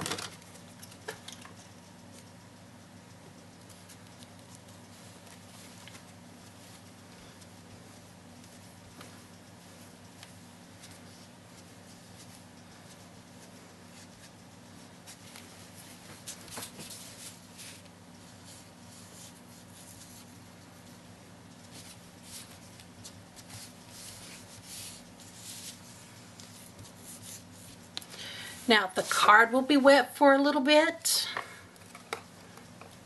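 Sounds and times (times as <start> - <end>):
low electrical hum: 0.0 - 33.0
sponge rubbing on paper: 23.4 - 27.8.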